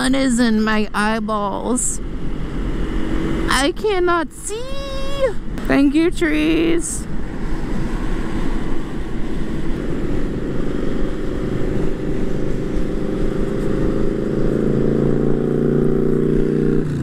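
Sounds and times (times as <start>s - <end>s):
wind rumble: 0.0s - 17.0s
motorcycle engine approaching: 9.4s - 17.0s.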